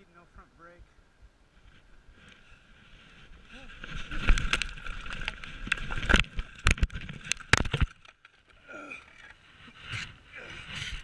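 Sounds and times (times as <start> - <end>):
mountain bike rattling on rocks: 3.2 - 8.6.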